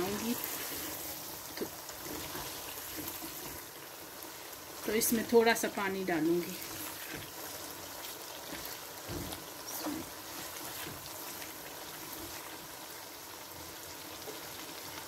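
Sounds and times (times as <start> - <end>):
curry sizzling in a wok: 0.0 - 15.0
spatula scraping wok: 6.2 - 12.6.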